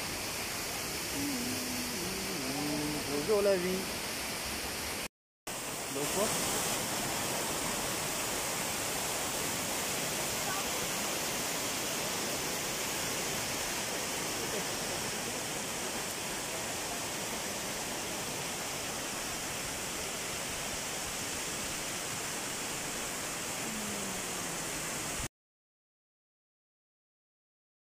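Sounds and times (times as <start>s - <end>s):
waterfall rushing: 0.0s - 25.3s.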